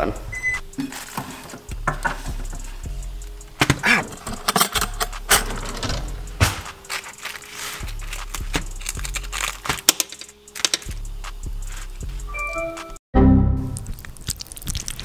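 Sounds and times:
background music: 0.0 - 14.0
cutlery rattling in drawer: 3.6 - 6.1
plastic film peeled back: 6.7 - 10.9.

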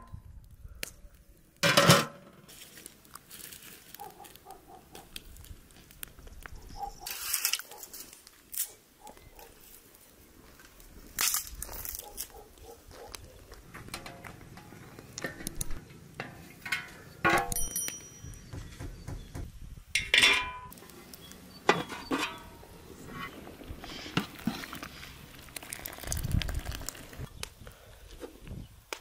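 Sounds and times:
utensils and dishes clinking: 16.7 - 18.5.

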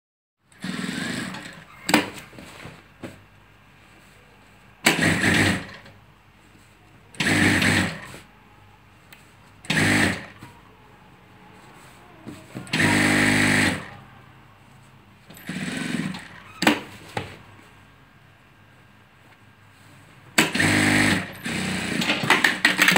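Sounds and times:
sewing machine stitching: 0.5 - 2.2, 4.8 - 5.9, 7.2 - 8.1, 9.6 - 10.4, 12.7 - 13.9, 15.3 - 16.8, 20.4 - 22.9.

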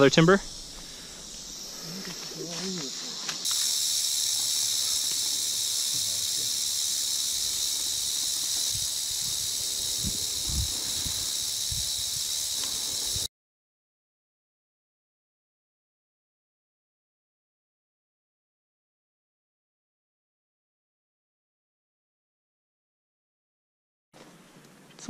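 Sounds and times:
rattlesnake rattling: 0.0 - 13.3.

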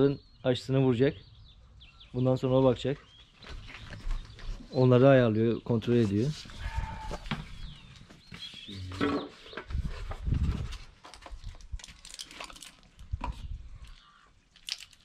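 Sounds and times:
short animal call: 6.6 - 7.3.

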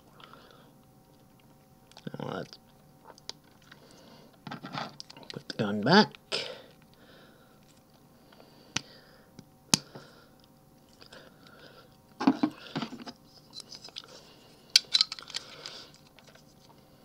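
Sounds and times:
plastic parts clicking and rattling: 14.7 - 16.4.

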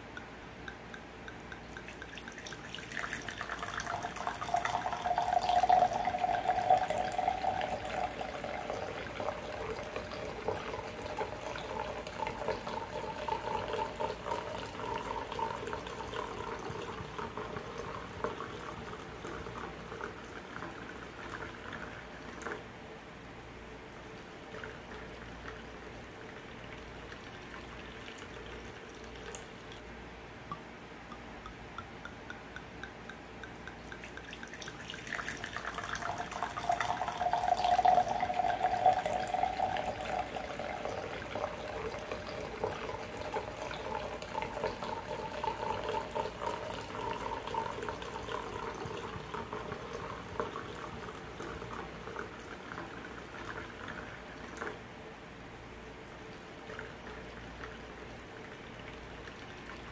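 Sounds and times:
wine pouring into a glass: 0.7 - 22.7, 24.0 - 29.8, 31.2 - 54.8, 56.3 - 59.9.

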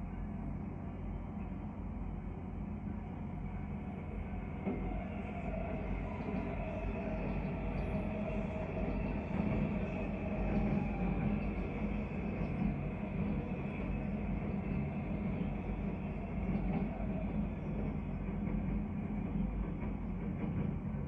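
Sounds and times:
faint steady whine: 0.0 - 6.7
train wheels rumbling on rails: 0.0 - 21.0.

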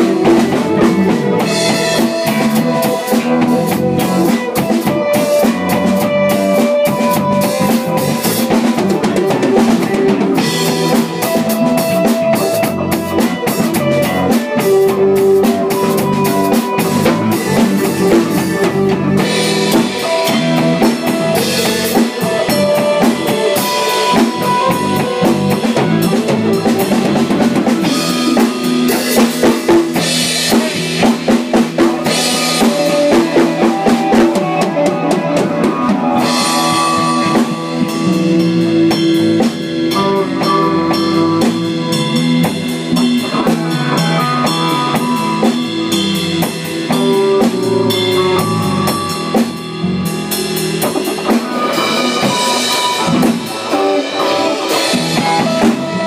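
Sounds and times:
drum kit beat: 0.0 - 56.0
guitar: 0.0 - 56.0.

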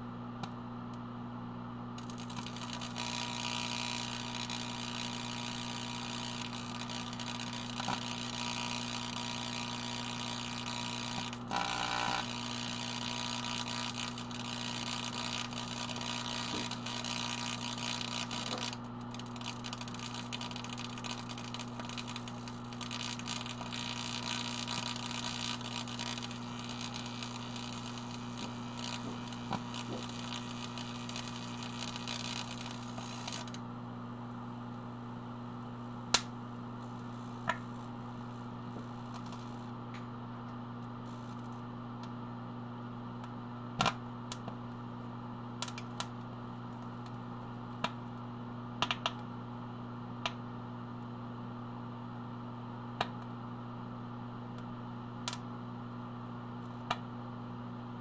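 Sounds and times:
microwave mains hum: 0.0 - 58.0
electrical arcing crackle: 2.0 - 33.7, 34.6 - 39.8, 40.8 - 41.6.

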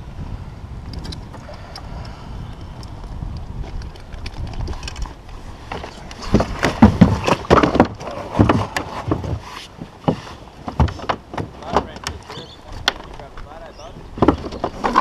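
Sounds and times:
wind rumbling on microphone: 0.0 - 15.0
knocks and thumps on kayak: 4.4 - 13.4, 14.0 - 15.0.

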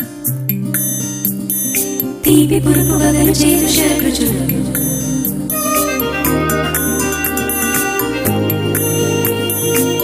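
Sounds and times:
music with held notes: 0.0 - 10.0
steady low bass: 2.2 - 9.5.

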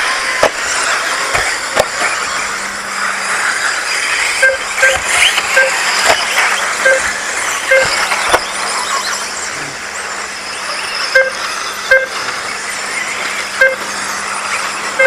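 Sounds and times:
rc cars whirring: 0.0 - 15.0
short high beeps: 4.4 - 9.2, 11.0 - 12.2, 13.6 - 13.9.

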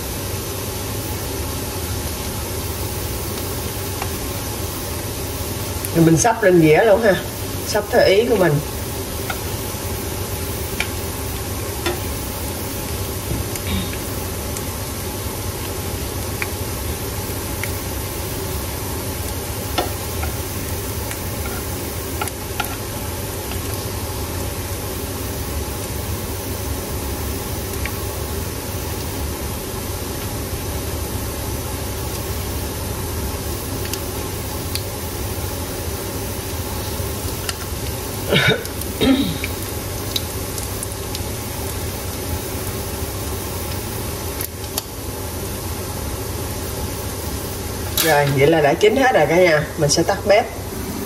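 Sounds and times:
oil sizzling in frying pan: 0.0 - 51.0.

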